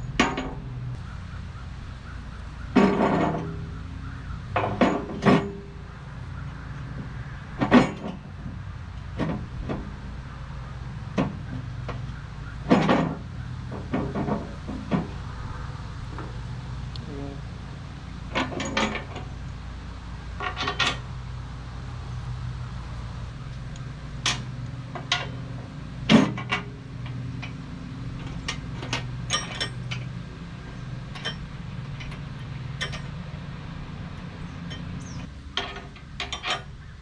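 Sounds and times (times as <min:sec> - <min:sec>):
metallic clicks and knocks: 0:11.1 - 0:15.3, 0:18.3 - 0:19.4, 0:20.4 - 0:21.1, 0:23.5 - 0:30.3, 0:31.0 - 0:33.5, 0:34.1 - 0:36.8.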